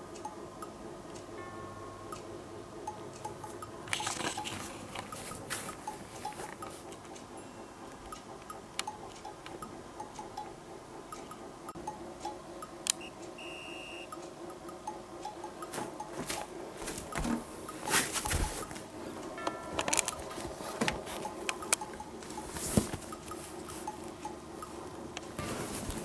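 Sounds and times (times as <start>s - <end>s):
light cute background music: 0.0s - 13.4s, 14.1s - 26.0s
rustling: 19.6s - 24.2s, 25.4s - 26.0s.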